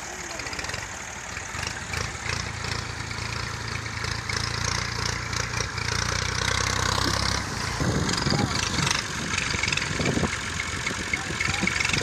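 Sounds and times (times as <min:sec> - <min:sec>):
tractor engine running under load: 0:00.0 - 0:12.0.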